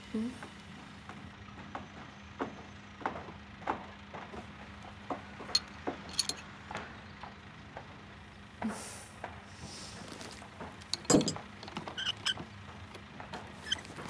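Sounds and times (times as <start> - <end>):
sharp metallic clinks: 5.5 - 6.5, 10.8 - 12.4
wrench clicking on metal parts: 5.6 - 6.4, 10.8 - 12.4.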